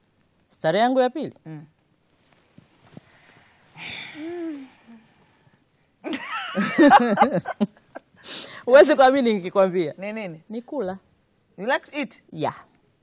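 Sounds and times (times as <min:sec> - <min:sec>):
women laughing: 0:06.1 - 0:08.0.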